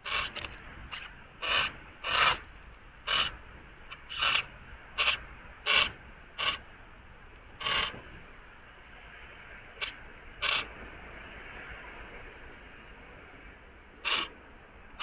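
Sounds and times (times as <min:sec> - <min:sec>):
bird harsh rasping calls: 0:00.0 - 0:06.8, 0:07.6 - 0:08.0, 0:09.8 - 0:10.7, 0:14.0 - 0:14.3.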